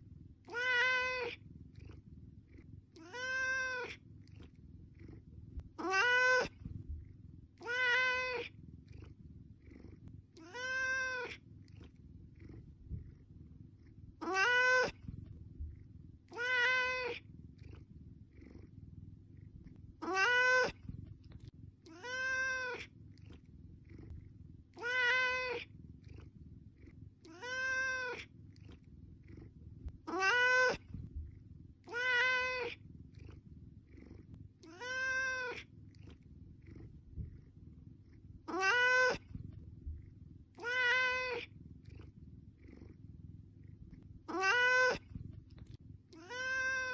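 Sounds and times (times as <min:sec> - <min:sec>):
cat meowing: 0:00.5 - 0:01.4, 0:03.0 - 0:04.0, 0:05.8 - 0:06.6, 0:07.6 - 0:08.5, 0:10.4 - 0:11.4, 0:14.2 - 0:15.1, 0:16.3 - 0:17.2, 0:20.0 - 0:20.8, 0:21.9 - 0:22.9, 0:24.8 - 0:25.7, 0:27.2 - 0:28.3, 0:30.0 - 0:30.9, 0:31.9 - 0:32.8, 0:34.6 - 0:35.7, 0:38.5 - 0:39.3, 0:40.6 - 0:41.5, 0:44.3 - 0:45.1, 0:46.1 - 0:46.9.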